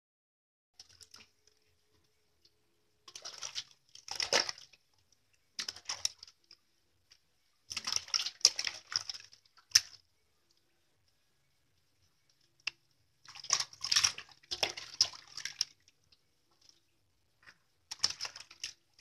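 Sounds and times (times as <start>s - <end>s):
water splashing in metal basin: 0.8s - 1.6s, 3.0s - 4.9s, 5.5s - 6.6s, 7.6s - 10.0s, 13.2s - 16.8s, 17.4s - 19.0s.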